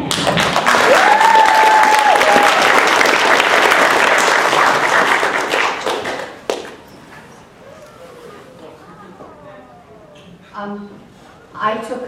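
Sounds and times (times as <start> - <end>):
audience applause: 0.0 - 6.9.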